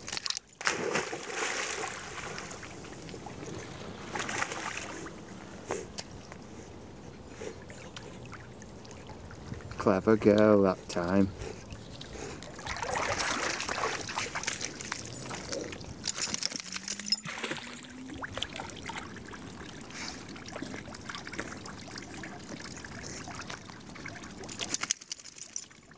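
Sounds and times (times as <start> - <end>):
dog splashing through water: 0.6 - 5.1, 11.8 - 25.6
water trickling: 7.9 - 25.9.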